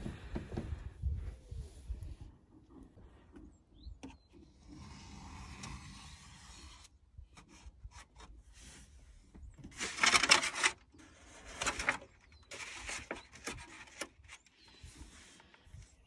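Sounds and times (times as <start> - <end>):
stiff paper rustling: 9.6 - 15.7.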